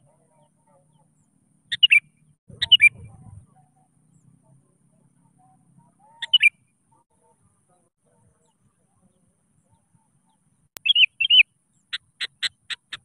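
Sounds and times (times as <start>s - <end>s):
bulbul chirping calls: 0.1s - 4.3s, 5.4s - 7.3s, 9.7s - 13.0s.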